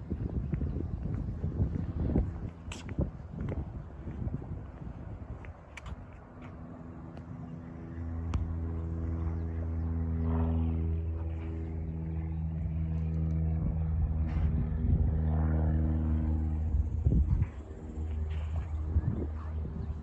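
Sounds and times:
motor droning: 0:00.0 - 0:20.0.

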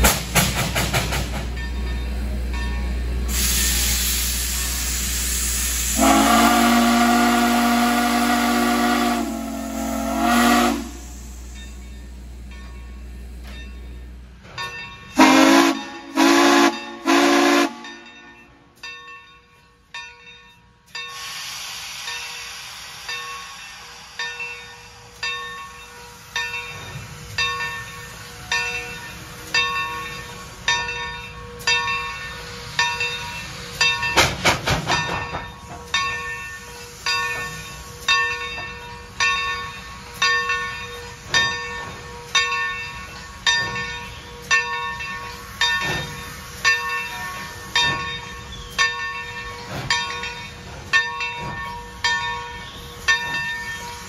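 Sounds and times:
locomotive bell ringing: 0:01.4 - 0:03.9, 0:06.0 - 0:21.2, 0:22.1 - 0:54.0.

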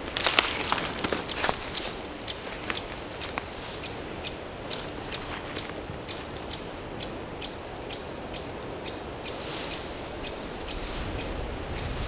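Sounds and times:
footsteps in dry leaves: 0:00.0 - 0:06.8
short high beeps: 0:02.0 - 0:02.9, 0:07.6 - 0:09.6.

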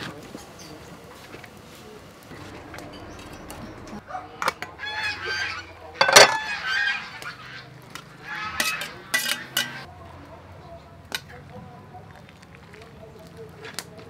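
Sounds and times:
geese honking: 0:02.3 - 0:09.9
metal pot lid and tongs clinking: 0:06.0 - 0:06.5, 0:08.6 - 0:09.9.

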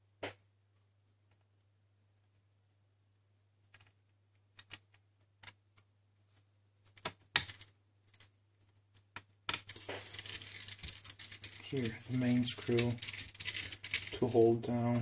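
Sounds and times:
small metal parts rattling: 0:09.5 - 0:15.0.

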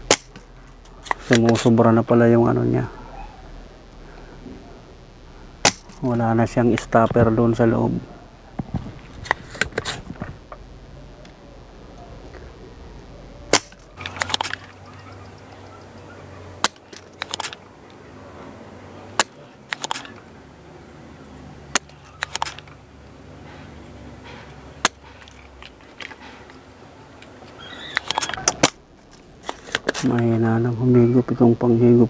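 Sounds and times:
desoldering pump snapping: 0:00.0 - 0:01.7, 0:05.6 - 0:06.1, 0:13.5 - 0:18.0, 0:19.2 - 0:20.2, 0:21.7 - 0:30.3.

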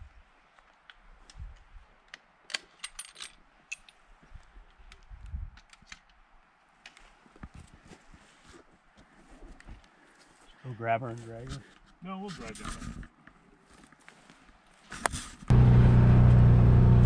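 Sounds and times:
rifle metallic clicks and clinks: 0:02.1 - 0:04.0.

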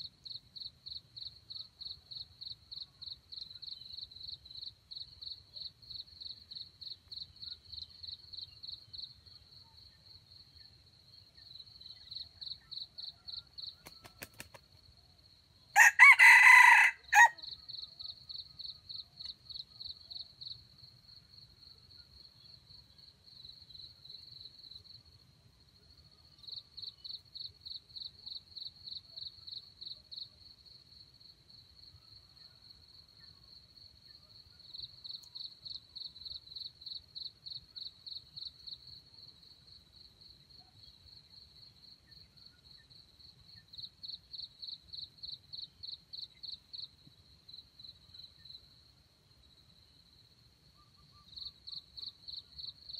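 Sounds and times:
cricket chirping: 0:00.0 - 0:52.9
rooster crowing: 0:15.8 - 0:17.4.

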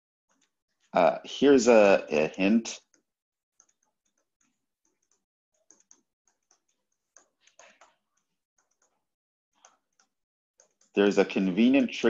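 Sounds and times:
stylus tapping on tablet screen: 0:02.8 - 0:11.0.

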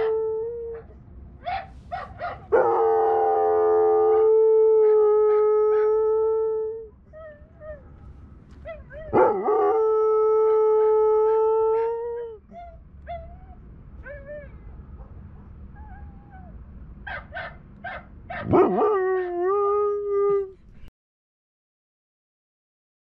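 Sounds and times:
dog howling: 0:00.0 - 0:01.0, 0:08.7 - 0:14.5, 0:18.4 - 0:20.5.

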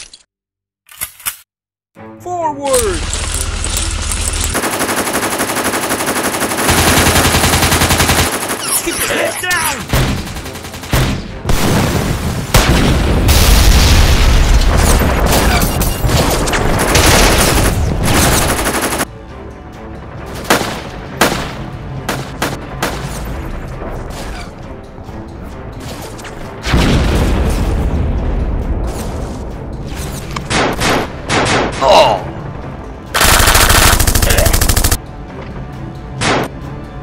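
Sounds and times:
background music: 0:02.0 - 0:37.0
gunshots: 0:04.6 - 0:19.1, 0:20.4 - 0:23.2, 0:29.9 - 0:31.8, 0:33.1 - 0:35.0, 0:36.2 - 0:36.5
explosion with deep rumble: 0:11.5 - 0:15.3, 0:26.7 - 0:28.8.

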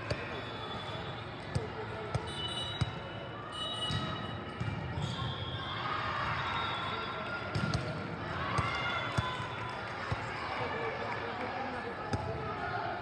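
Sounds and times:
murmur of voices echoing: 0:07.1 - 0:13.0.

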